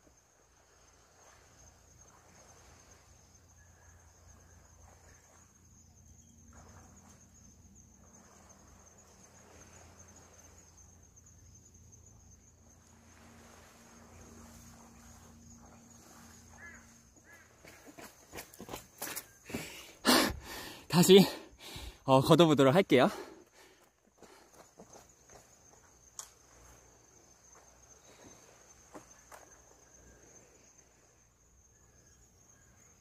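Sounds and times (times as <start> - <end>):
soft wash: 0.0 - 5.8, 6.4 - 11.3, 12.4 - 17.7
high-pitched insect drone: 0.8 - 20.1, 24.2 - 33.0.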